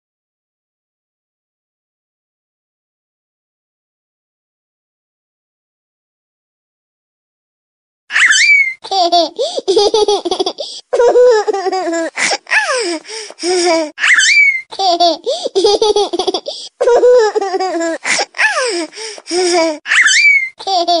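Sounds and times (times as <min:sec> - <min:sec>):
recorded baby laughing: 0:08.1 - 0:21.0.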